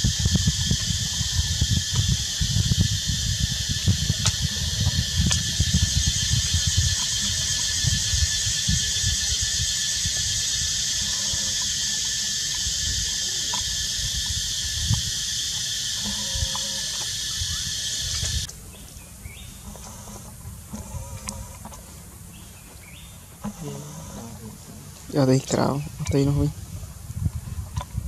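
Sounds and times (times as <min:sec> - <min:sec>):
insects droning: 0:00.0 - 0:28.0
wind buffeting microphone: 0:00.0 - 0:28.0
faint chirps: 0:00.8 - 0:21.6.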